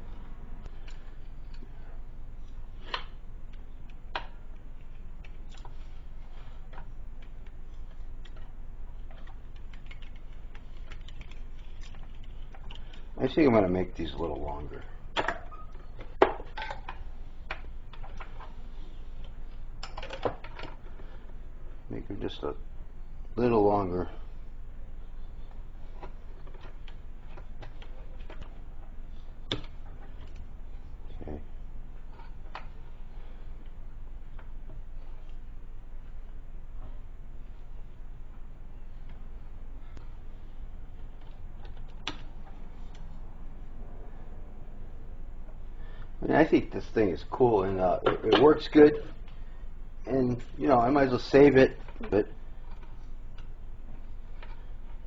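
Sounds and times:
low steady hum: 0.0s - 55.0s
wire strippers clicking and snipping: 8.2s - 13.2s, 41.2s - 43.1s.

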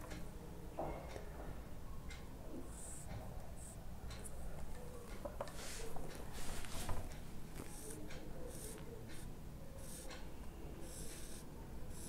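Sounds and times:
marker rubbing on whiteboard: 7.6s - 10.2s, 10.8s - 12.0s.

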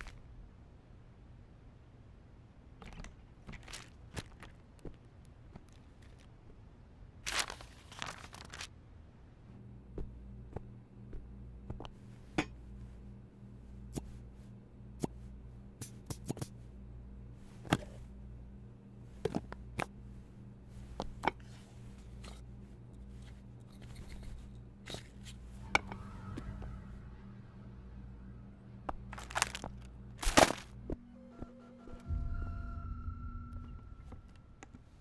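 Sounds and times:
steady low hum: 8.6s - 35.0s.

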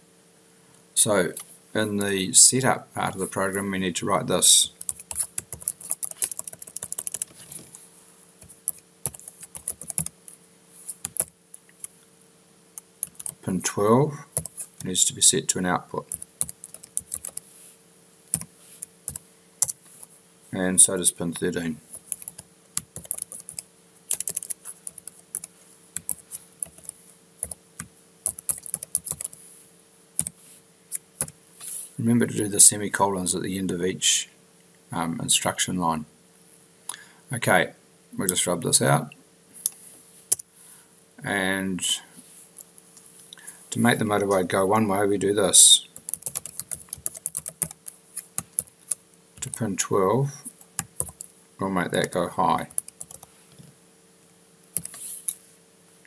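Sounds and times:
faint steady hum: 0.0s - 56.0s
typing on computer keyboard: 4.8s - 7.4s, 8.6s - 10.2s, 11.1s - 11.4s, 13.0s - 13.4s, 16.1s - 17.4s, 22.1s - 27.6s, 28.2s - 29.4s, 46.0s - 49.0s, 50.7s - 51.3s, 52.7s - 53.3s.

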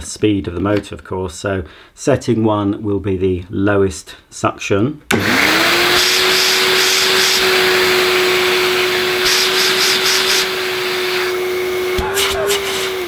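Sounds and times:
vacuum cleaner motor whine: 5.1s - 13.0s.

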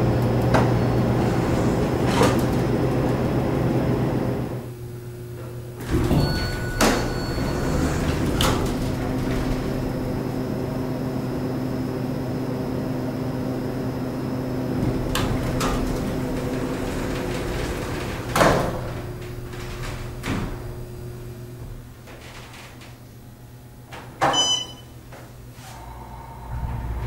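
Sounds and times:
elevator doors sliding open: 0.0s - 27.0s
elevator machine hum: 0.0s - 27.0s
elevator clicks: 5.4s - 10.6s, 14.7s - 23.0s, 23.9s - 25.3s.

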